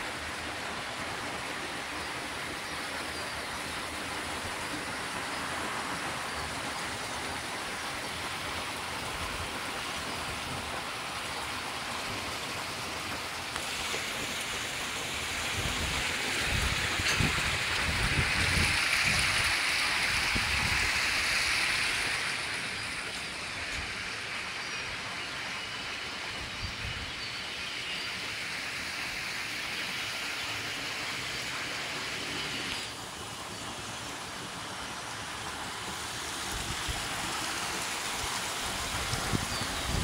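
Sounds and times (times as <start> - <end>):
water rushing: 0.0 - 40.0
wind buffeting microphone: 15.5 - 19.5.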